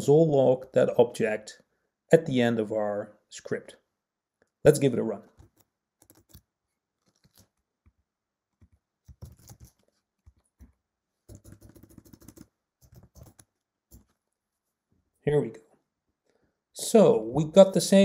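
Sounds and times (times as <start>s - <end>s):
faint typing on keyboard: 5.2s - 14.2s.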